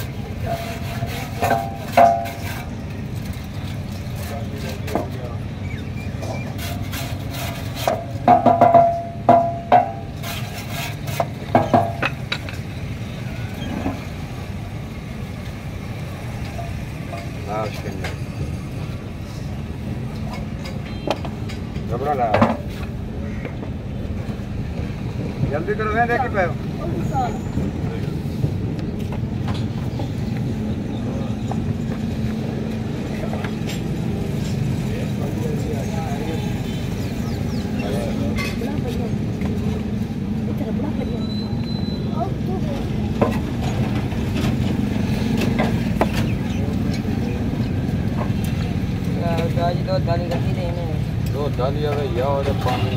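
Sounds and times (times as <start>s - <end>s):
wire brush scrubbing metal: 0.1s - 2.7s
ringing metallic clanks: 8.0s - 10.1s.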